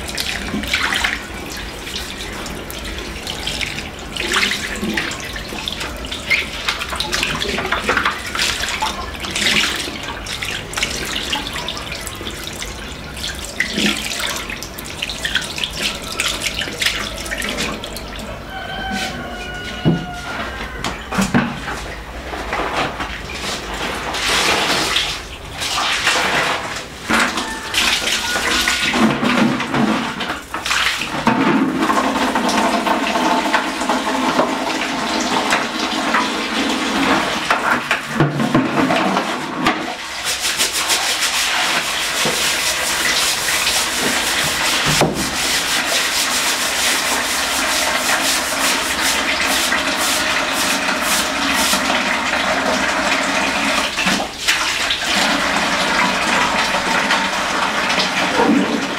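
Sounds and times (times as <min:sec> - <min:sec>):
water sloshing and splashing: 0:00.0 - 0:58.9
brush scrubbing floor tiles: 0:18.8 - 0:20.8, 0:21.8 - 0:57.2.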